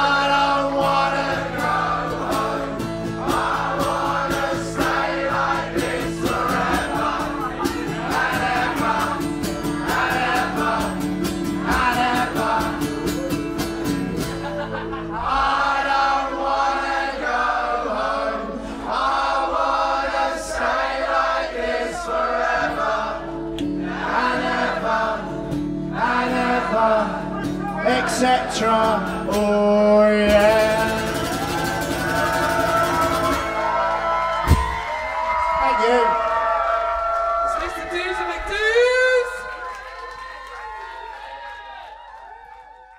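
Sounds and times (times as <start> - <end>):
bass: 0.0 - 17.1, 20.8 - 37.6
crowd singing along: 0.0 - 34.8
acoustic guitar: 0.0 - 35.3.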